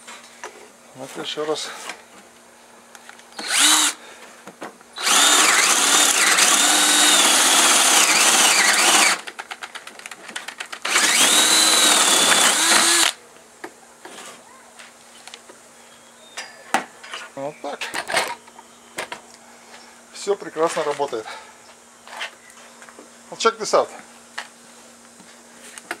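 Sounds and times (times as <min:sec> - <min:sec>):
cordless drill drilling into wood: 0:03.4 - 0:04.0, 0:05.0 - 0:09.2, 0:10.8 - 0:13.2.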